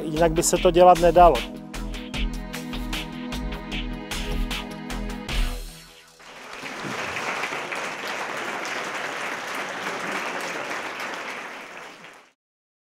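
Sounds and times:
crowd applauding: 5.8 - 12.4.

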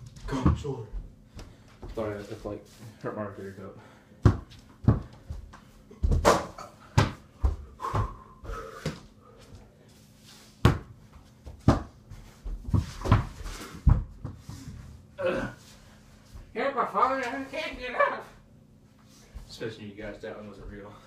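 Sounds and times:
basketball bouncing on floor: 4.2 - 5.4, 6.0 - 8.2, 10.6 - 14.4.

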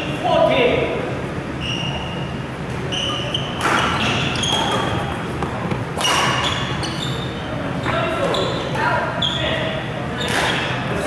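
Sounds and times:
shoes squeaking on court floor: 1.6 - 11.0
sharp shuttlecock hits: 5.7 - 6.4.

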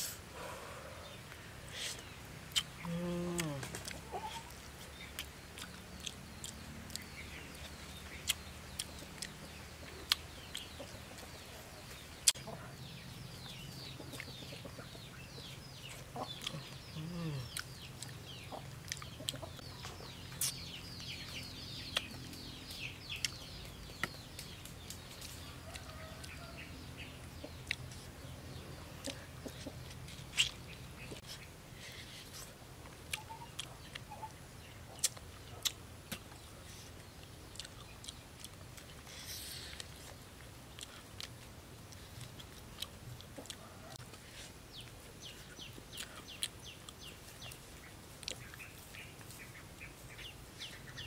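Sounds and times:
birds chirping and clucking: 0.2 - 51.0
chewing crunchy fish bones: 2.5 - 11.4, 29.0 - 34.2, 34.9 - 49.0.

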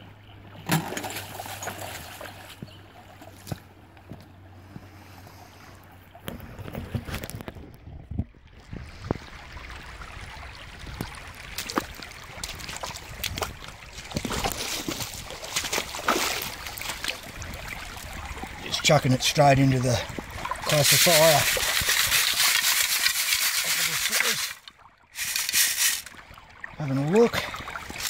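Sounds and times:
creek water trickling: 0.1 - 28.0
footsteps on stones: 11.6 - 17.1, 20.7 - 24.6, 25.2 - 26.2.

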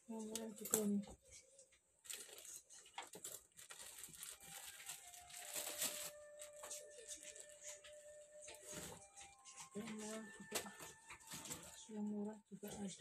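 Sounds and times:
cloth and bag rustling: 2.0 - 12.0.

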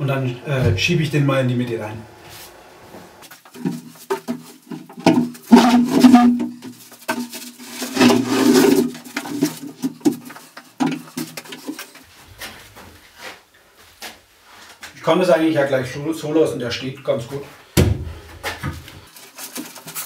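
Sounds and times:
wooden cabinet scraping on floor: 7.6 - 9.3.

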